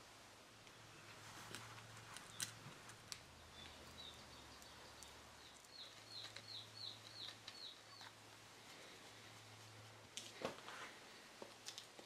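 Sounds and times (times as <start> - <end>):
high bird chirps: 3.4 - 8.1.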